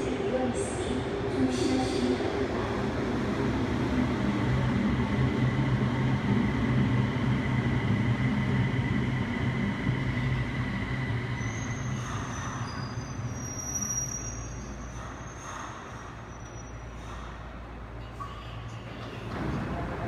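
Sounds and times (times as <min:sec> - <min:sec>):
train humming and whining: 0:00.0 - 0:20.0
faint high squeals: 0:11.3 - 0:17.1.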